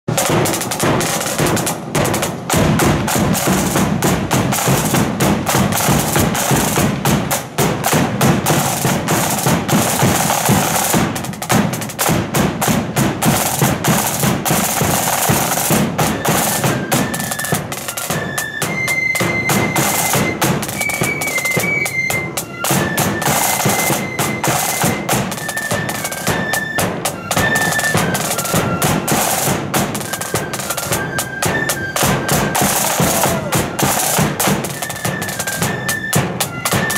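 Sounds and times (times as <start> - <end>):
snare drums: 0.0 - 36.9
flute melody: 0.1 - 11.9, 13.2 - 36.9
bass drum: 0.1 - 17.0.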